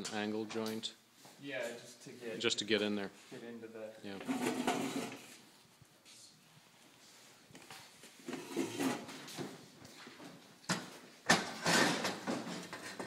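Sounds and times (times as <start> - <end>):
tools rustling and knocking: 10.2 - 13.0.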